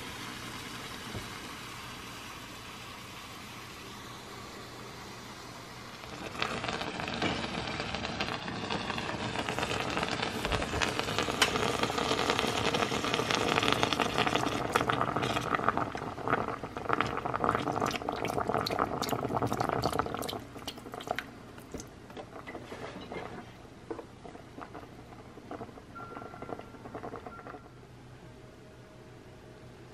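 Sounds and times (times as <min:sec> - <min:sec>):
broth pouring into a pot: 0:00.0 - 0:23.6.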